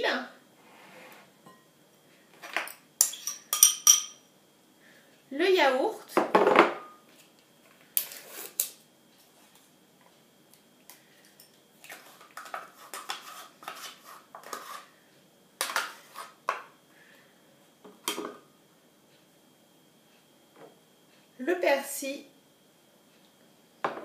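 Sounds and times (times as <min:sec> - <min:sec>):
metal spoon scraping and clinking: 0:03.0 - 0:04.2.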